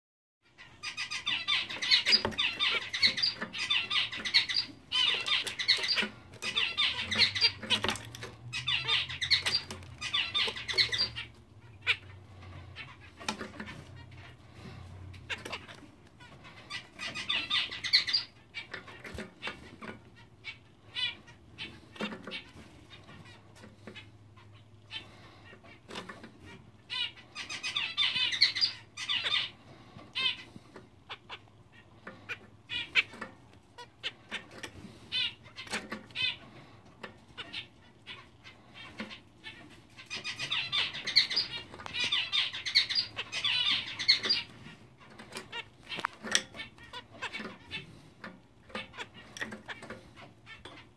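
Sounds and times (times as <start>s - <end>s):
finch singing buzzy song: 0.6s - 31.4s, 37.4s - 48.0s
birds tapping on perches: 0.9s - 11.3s, 24.9s - 50.9s.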